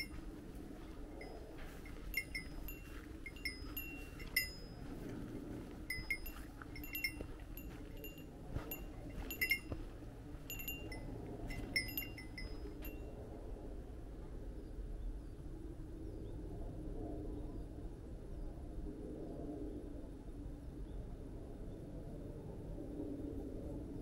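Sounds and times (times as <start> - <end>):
small metal bell tinkling: 0.0 - 0.2, 1.1 - 5.1, 5.8 - 13.1.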